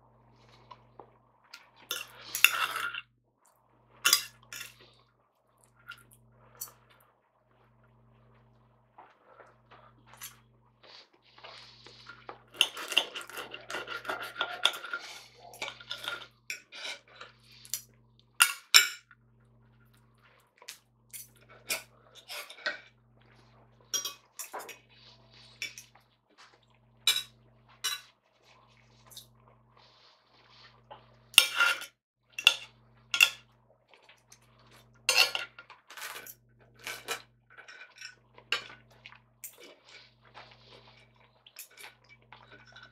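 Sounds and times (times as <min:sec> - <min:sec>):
knife and fork scraping plate: 0:01.9 - 0:03.0, 0:04.1 - 0:04.9, 0:10.1 - 0:19.0, 0:21.2 - 0:22.9, 0:23.9 - 0:26.0, 0:27.1 - 0:28.2, 0:29.0 - 0:33.4, 0:34.7 - 0:38.8.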